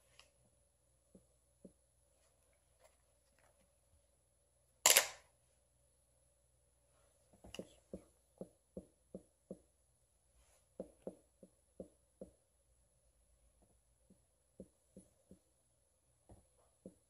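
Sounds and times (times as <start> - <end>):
marker tapping on whiteboard: 7.4 - 9.8, 10.7 - 12.4, 13.6 - 15.5, 16.3 - 17.0.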